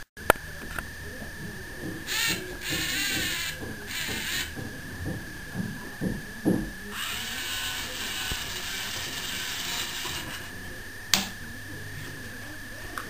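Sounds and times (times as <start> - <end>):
toy robot arm motors whirring: 2.0 - 4.7, 6.9 - 10.6.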